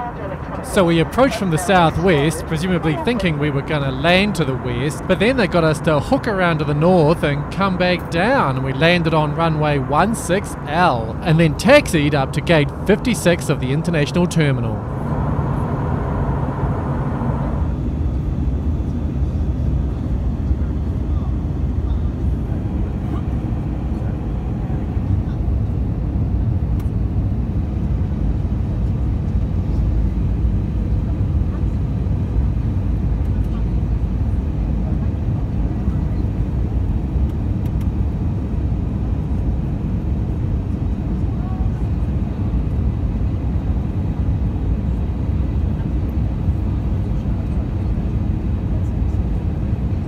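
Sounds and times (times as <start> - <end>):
aircraft cabin engine rumble: 0.0 - 50.0.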